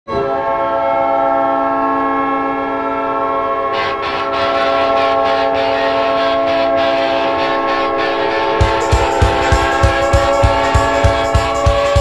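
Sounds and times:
goal horn blast: 0:03.7 - 0:12.0
noisy crowd: 0:07.2 - 0:12.0
drum beat of song: 0:08.6 - 0:12.0.

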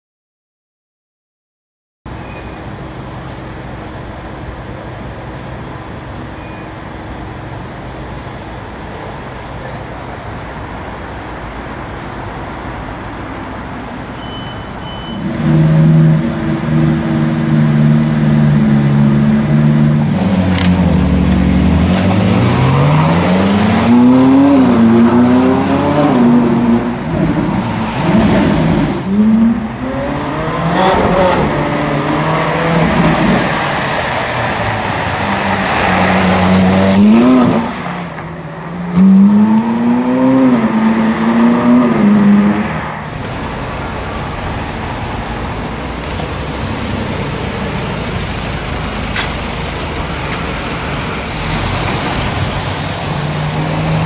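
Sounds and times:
car engine accelerating: 0:15.2 - 0:54.0.

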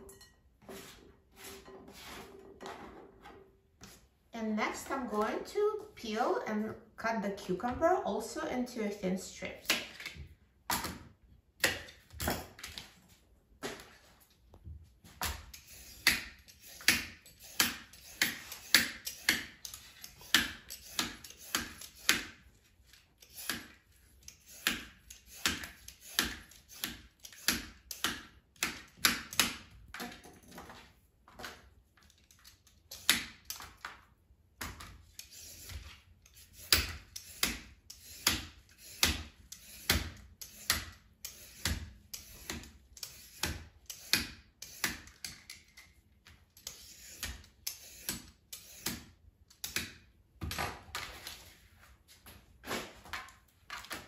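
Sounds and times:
peeler scraping cucumber: 0:15.4 - 0:22.3, 0:22.9 - 0:28.2, 0:35.1 - 0:45.4, 0:46.6 - 0:49.0.

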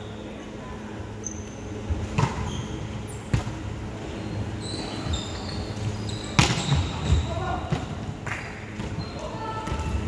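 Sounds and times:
sneakers squeaking on wooden court: 0:01.2 - 0:03.5, 0:04.1 - 0:07.8, 0:08.8 - 0:10.0.

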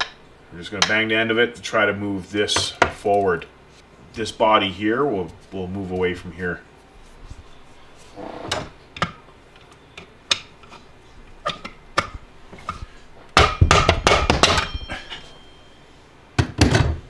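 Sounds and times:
tools clicking and knocking: 0:11.4 - 0:15.0
screwdriver banging on metal: 0:13.4 - 0:15.0.

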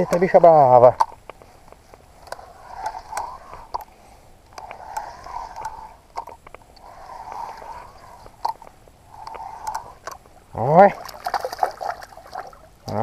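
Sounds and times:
fishing reel whirring and clicking: 0:02.2 - 0:03.9, 0:04.5 - 0:10.2.

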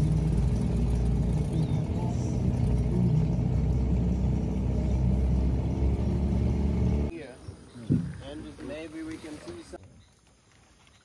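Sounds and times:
boat motor droning: 0:00.0 - 0:07.1.

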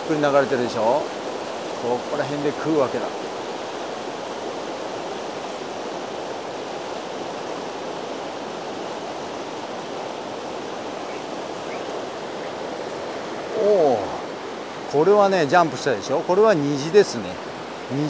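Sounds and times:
river rushing over rocks: 0:00.0 - 0:18.0.

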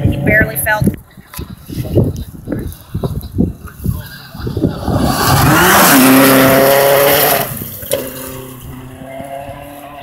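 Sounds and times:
gravel and tyre noise: 0:00.0 - 0:10.0
rally car passing at speed: 0:04.6 - 0:10.0.

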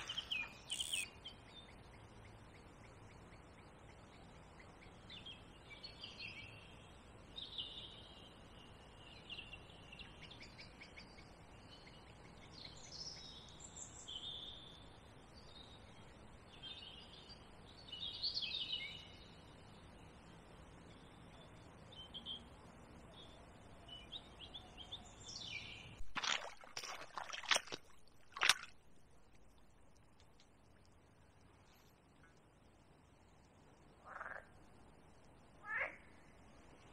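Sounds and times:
songbirds warbling: 0:00.0 - 0:06.7
faint background hiss: 0:00.0 - 0:36.9.

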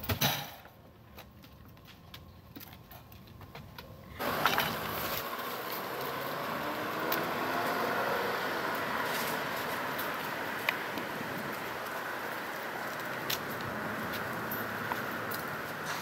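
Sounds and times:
outdoor rushing noise: 0:04.2 - 0:16.0.

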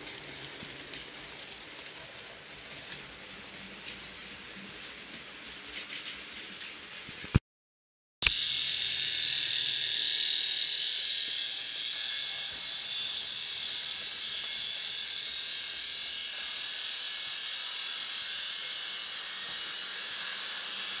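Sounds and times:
model train motor whining: 0:08.2 - 0:21.0.

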